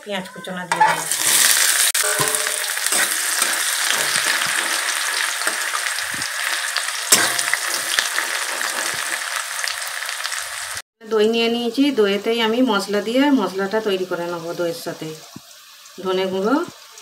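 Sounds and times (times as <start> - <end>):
metal spatula scraping a pan: 0.7 - 9.7
onions sizzling in hot oil: 0.9 - 10.8, 11.8 - 17.0.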